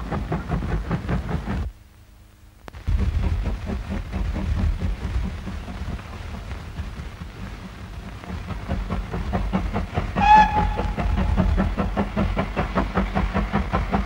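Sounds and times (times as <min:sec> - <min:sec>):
steam locomotive exhaust beating: 0:00.0 - 0:01.8, 0:02.7 - 0:14.0
low rumble: 0:02.7 - 0:13.3
steam whistle blast: 0:10.2 - 0:11.5.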